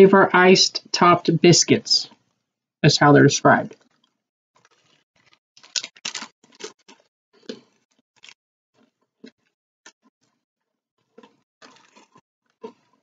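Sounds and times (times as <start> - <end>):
hard biscuit being chewed: 3.8 - 9.6, 11.1 - 13.0
plastic packet crinkling: 4.6 - 7.1, 8.2 - 8.4, 11.6 - 12.2.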